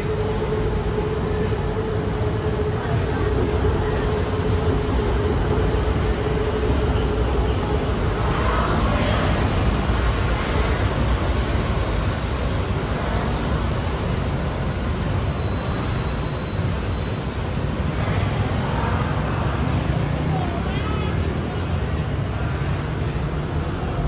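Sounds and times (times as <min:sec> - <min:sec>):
city road traffic: 0:00.0 - 0:24.0
brief high squeal: 0:15.2 - 0:17.6.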